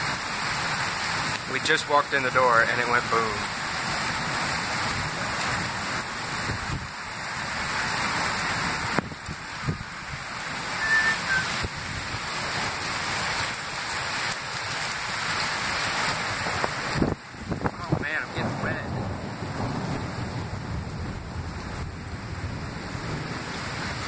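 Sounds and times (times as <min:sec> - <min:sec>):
heavy rain pouring: 0:00.0 - 0:24.0.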